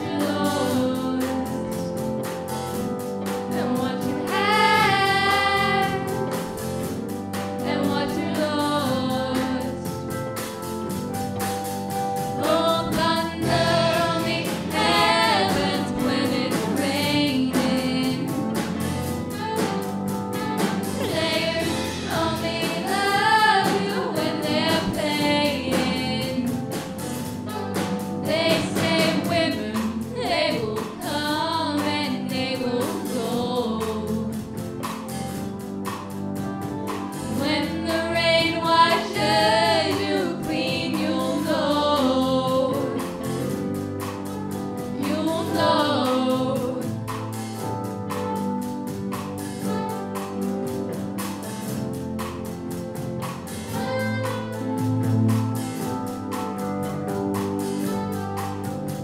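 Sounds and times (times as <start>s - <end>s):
people singing: 0.0s - 2.1s, 3.5s - 6.7s, 7.6s - 10.0s, 12.3s - 34.4s, 37.2s - 43.6s, 44.9s - 47.2s
bass guitar: 0.0s - 59.0s
drum kit beat: 0.0s - 59.0s
keyboards: 0.0s - 59.0s
electric guitar: 40.4s - 59.0s.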